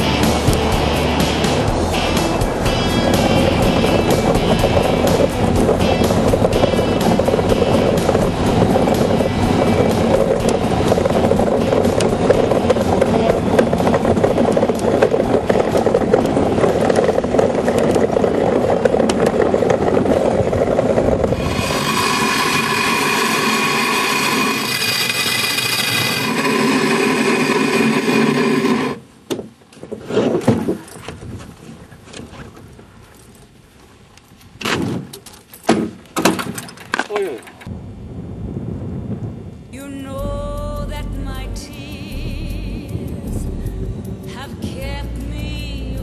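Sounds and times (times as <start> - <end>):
ice yacht runners scraping over ice: 0.0 - 29.0.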